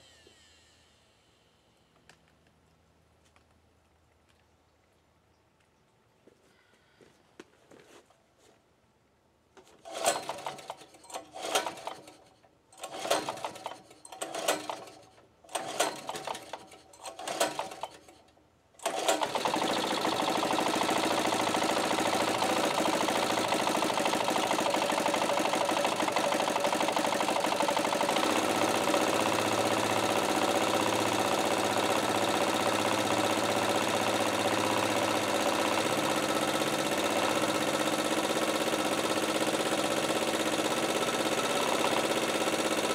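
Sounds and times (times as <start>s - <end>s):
pull-cord starter cranking: 9.6s - 42.9s
generator engine running: 18.8s - 42.9s.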